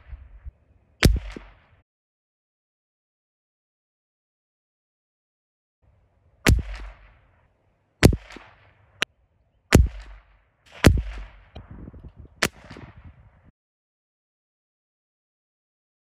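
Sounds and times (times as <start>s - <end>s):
rifle shots: 1.0s - 1.8s, 6.5s - 7.3s, 8.0s - 9.1s, 9.7s - 11.8s, 12.4s - 13.2s.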